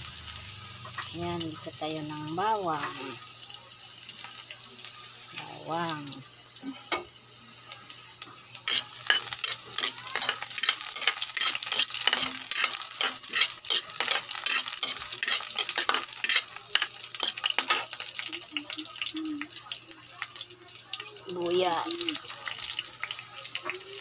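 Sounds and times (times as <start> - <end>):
garlic sizzling in hot oil: 0.0 - 24.0
metal ladle scraping wok: 8.6 - 18.0.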